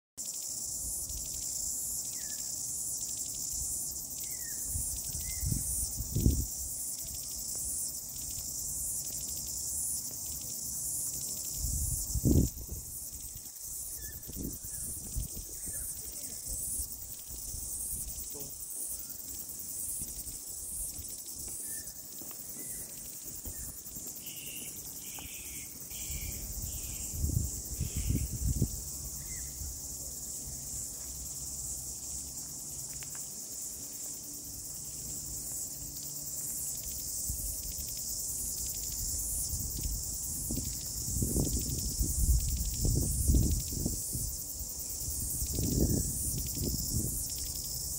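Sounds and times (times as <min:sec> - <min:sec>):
insects shrilling: 0:00.2 - 0:47.9
low wind rumble: 0:38.9 - 0:47.4.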